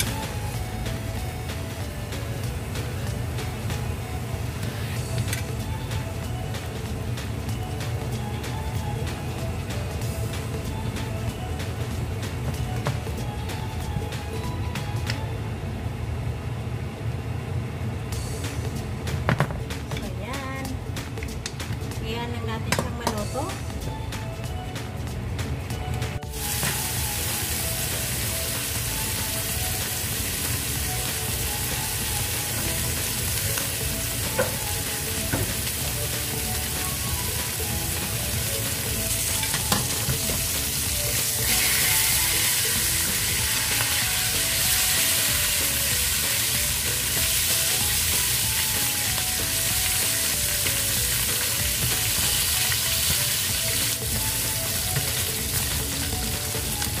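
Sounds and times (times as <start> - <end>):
meat sizzling in frying pan: 26.3 - 57.0.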